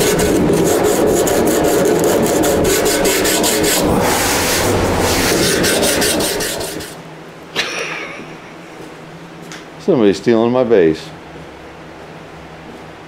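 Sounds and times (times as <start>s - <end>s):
sandpaper rasping on filler: 0.0s - 7.0s.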